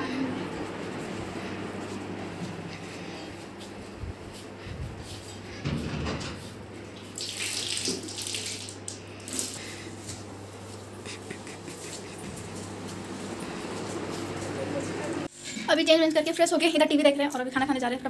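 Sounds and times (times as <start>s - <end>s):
steady low hum: 0.0s - 7.2s, 8.9s - 15.7s
water pouring and splashing: 6.9s - 9.6s.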